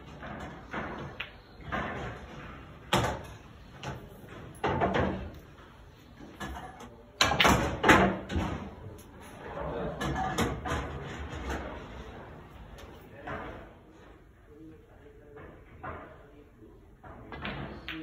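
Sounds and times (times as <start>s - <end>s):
pool balls knocking together: 0.0s - 5.5s, 6.3s - 8.8s, 9.9s - 11.8s.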